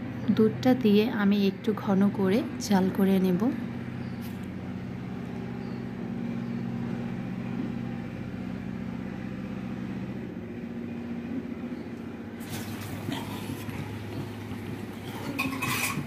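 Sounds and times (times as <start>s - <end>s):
low mechanical hum: 0.0s - 16.0s
gravy simmering: 12.4s - 16.0s.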